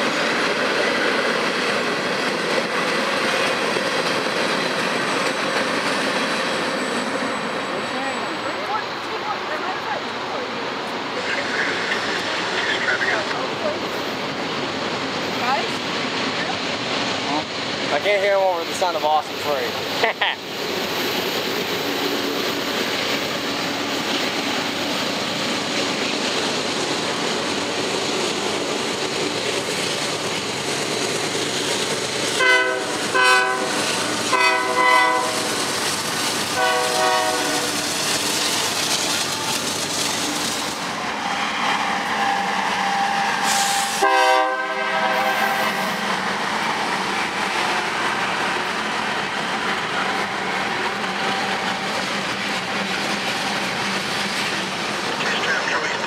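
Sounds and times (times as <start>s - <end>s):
train wheels rumbling on rail: 0.0s - 56.0s
locomotive air horn blasts: 32.4s - 35.5s, 36.6s - 37.7s, 42.2s - 45.9s.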